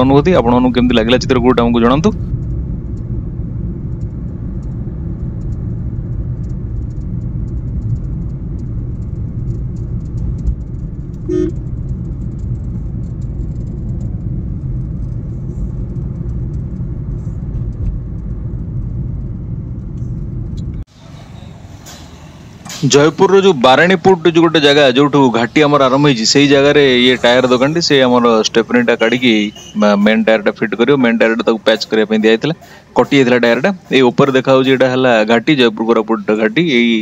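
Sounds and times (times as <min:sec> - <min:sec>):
car engine and tyres rumbling: 0:00.0 - 0:37.0
short horn beep: 0:11.2 - 0:11.6, 0:29.0 - 0:29.8.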